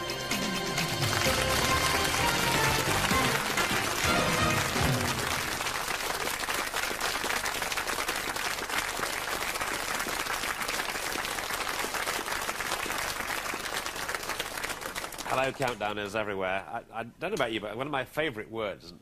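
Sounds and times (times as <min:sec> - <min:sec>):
theme tune music: 0:00.0 - 0:05.9
audience applauding: 0:00.0 - 0:15.8.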